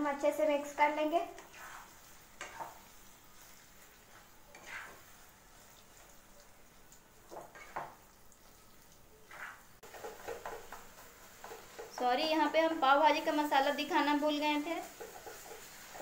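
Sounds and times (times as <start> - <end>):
faint sizzle in a pan: 0.0 - 16.0
spatula scraping a pan: 1.2 - 6.5, 7.2 - 8.1, 9.2 - 12.4, 13.2 - 16.0.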